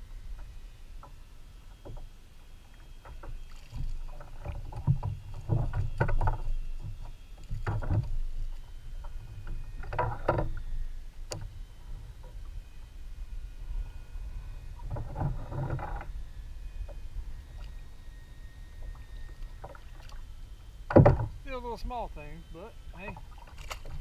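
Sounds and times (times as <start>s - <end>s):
water splashing on kayak: 3.0s - 9.1s, 18.9s - 20.3s, 23.0s - 24.0s.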